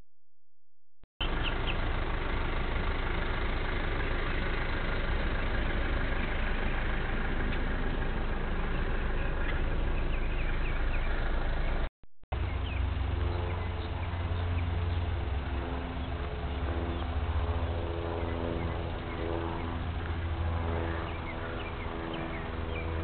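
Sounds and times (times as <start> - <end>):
bird chirps: 1.2 - 1.9, 8.6 - 15.1, 20.8 - 23.0
car engine rumbling: 1.2 - 23.0.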